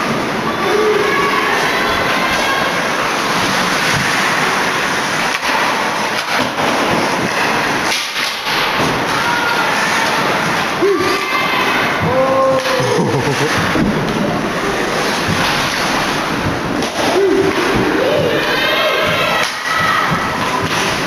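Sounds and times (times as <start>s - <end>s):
crowd yelling and cheering: 0.0s - 5.7s, 8.9s - 13.9s, 16.9s - 21.0s
individual shouts: 10.8s - 13.5s.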